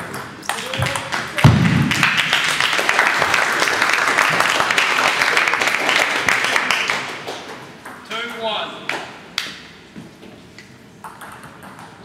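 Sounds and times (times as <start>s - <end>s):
spectators clapping: 0.4s - 7.8s.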